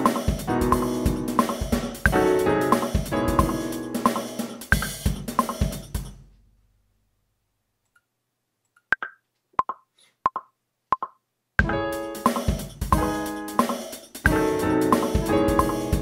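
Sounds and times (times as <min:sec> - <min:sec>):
piano and drum beat: 0:00.0 - 0:06.2, 0:11.6 - 0:16.0.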